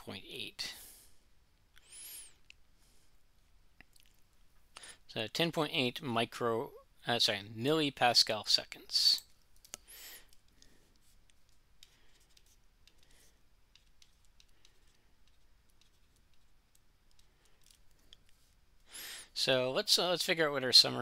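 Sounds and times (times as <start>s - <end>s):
person breathing: 0.7s - 3.2s, 4.7s - 5.1s, 9.8s - 11.2s, 11.8s - 13.5s, 17.2s - 18.2s, 18.8s - 19.4s
stylus clicking on tablet: 9.2s - 18.4s.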